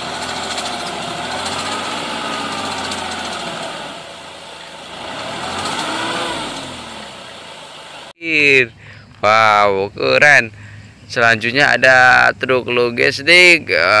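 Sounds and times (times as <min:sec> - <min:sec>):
truck engine running: 0:00.0 - 0:08.8.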